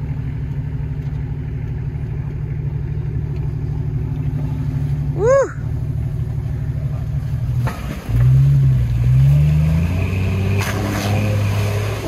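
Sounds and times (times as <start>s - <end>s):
engine revving under load: 7.5s - 12.0s.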